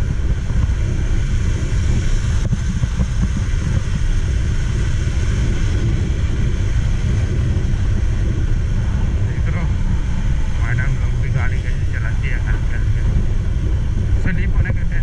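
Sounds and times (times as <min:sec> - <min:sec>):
tyre noise on wet road: 0:00.0 - 0:11.2
wind rush on microphone: 0:00.0 - 0:15.0.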